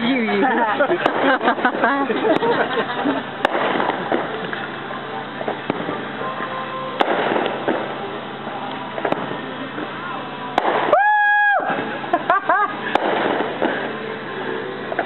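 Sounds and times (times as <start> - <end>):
fireworks bangs: 0.0 - 15.0
fireworks crackling: 0.0 - 15.0.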